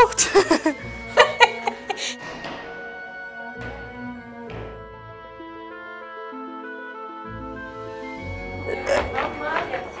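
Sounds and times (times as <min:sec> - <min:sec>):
background music: 0:00.0 - 0:10.0
laughter: 0:00.2 - 0:02.2, 0:08.7 - 0:09.3.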